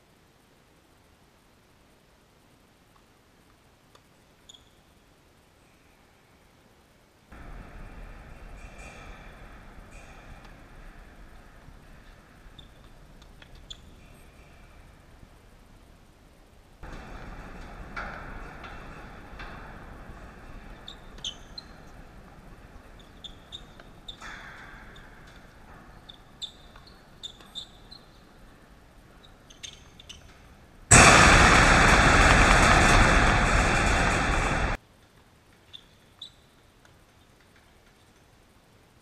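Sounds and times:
faint steady hiss: 0.0s - 39.0s
loud rush of noise: 30.9s - 34.8s.

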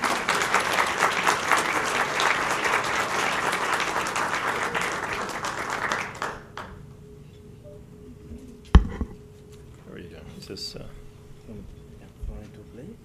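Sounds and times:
audience applause: 0.0s - 6.8s
short knock: 8.8s - 9.2s.

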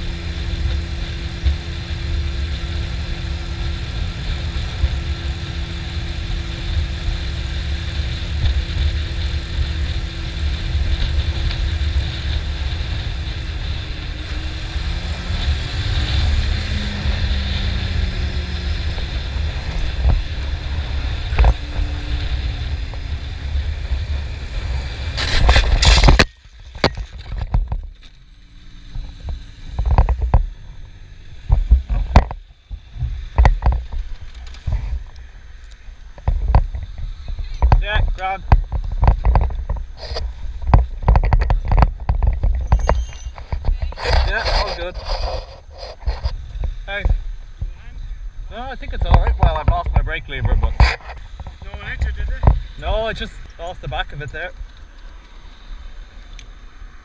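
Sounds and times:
motorcycle engine running: 0.0s - 57.0s
motorcycle crash: 25.0s - 32.4s.

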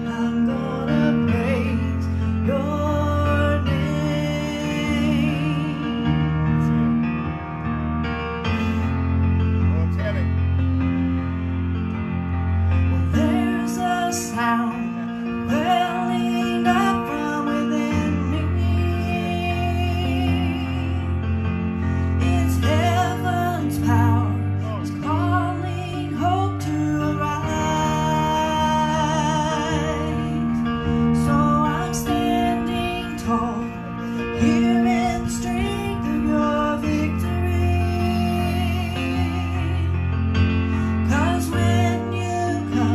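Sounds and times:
electronic keyboard chords: 0.0s - 42.9s
woman singing with vibrato: 13.1s - 21.2s, 41.0s - 42.9s.

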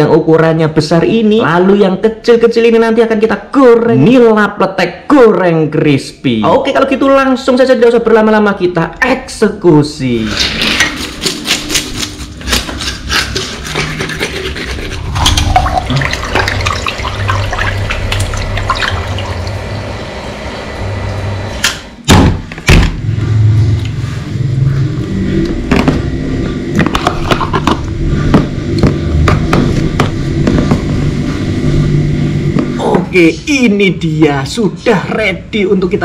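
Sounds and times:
water running from tap: 13.7s - 21.3s.

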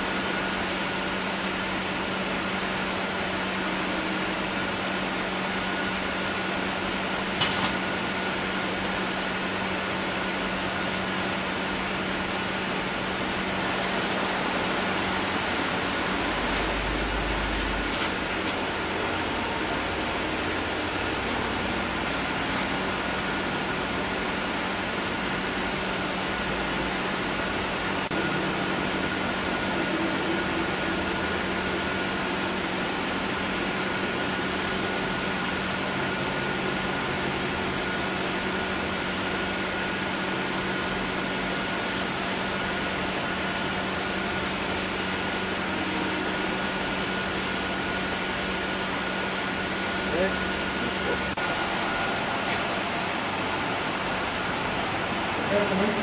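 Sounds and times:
mechanical hum and hiss: 0.0s - 56.0s
high whine: 12.4s - 33.9s.

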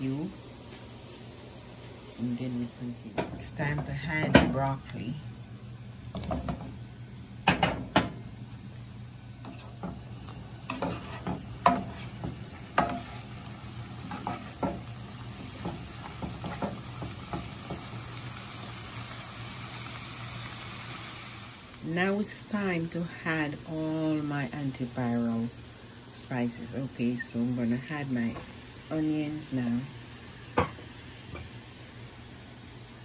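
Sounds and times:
faint sizzle: 0.0s - 33.0s
vegetables clattering in a pan: 6.1s - 6.8s, 9.4s - 18.0s.

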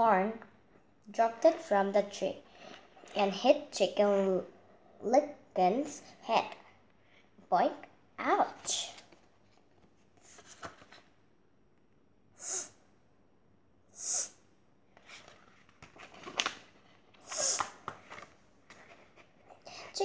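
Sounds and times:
book pages clicking and rustling: 8.9s - 11.1s, 15.0s - 19.4s
person sniffing: 12.4s - 12.9s, 13.9s - 14.4s, 17.2s - 17.8s.

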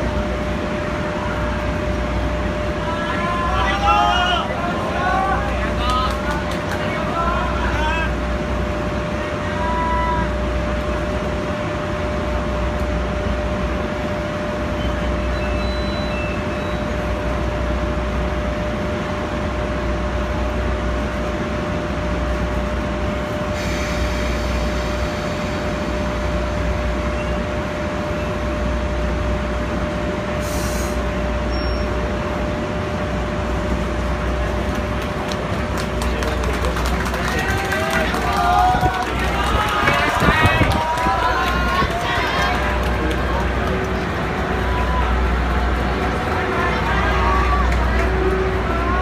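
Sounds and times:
locomotive deep hum: 0.0s - 49.0s
air hiss: 30.4s - 31.0s
short sharp hiss: 30.4s - 31.0s.

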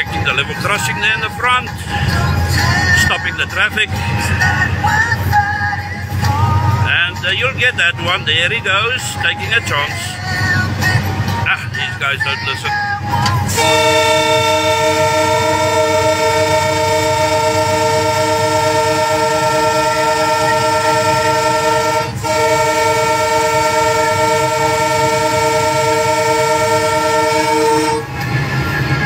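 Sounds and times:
locomotive air horn: 13.4s - 29.0s.

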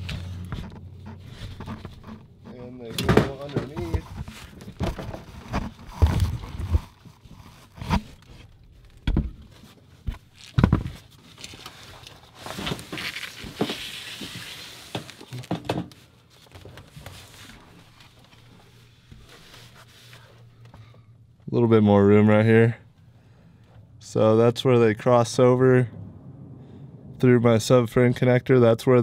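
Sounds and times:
rustling scrapes: 0.0s - 8.6s, 9.5s - 15.4s, 16.0s - 20.6s.

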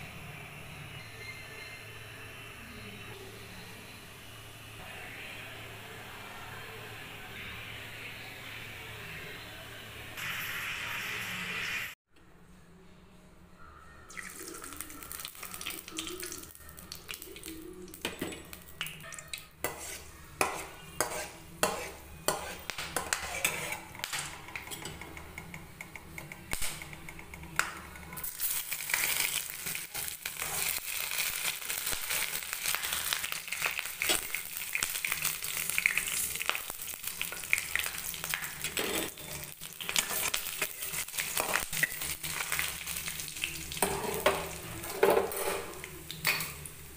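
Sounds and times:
spices sizzling in hot oil: 14.1s - 24.2s, 28.2s - 46.9s
ladle scraping a pan: 19.6s - 24.1s, 43.8s - 45.8s.

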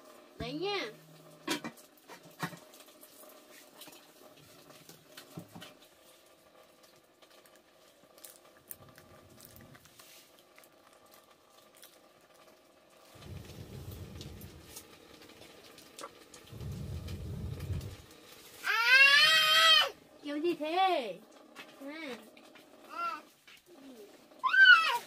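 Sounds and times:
low rumbling noise: 13.1s - 18.4s.

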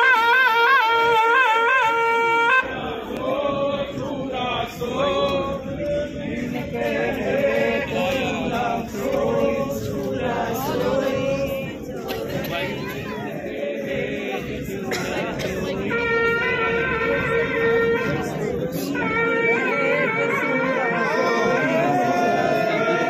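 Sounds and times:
crowd chanting in unison: 2.6s - 19.1s, 19.7s - 23.0s
brass horn wavering note: 15.9s - 23.0s.

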